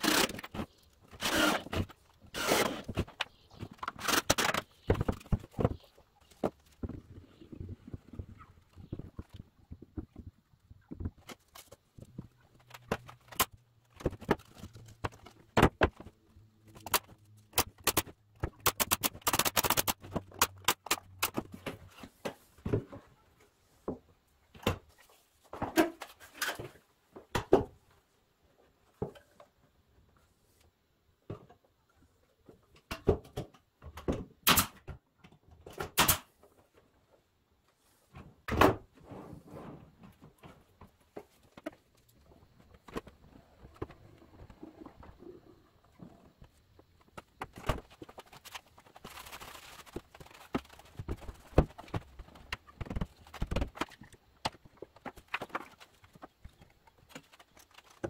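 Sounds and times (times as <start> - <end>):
wood parts clacking and knocking: 0.0 - 23.2, 40.0 - 58.0
nail gun shots: 34.4 - 34.8.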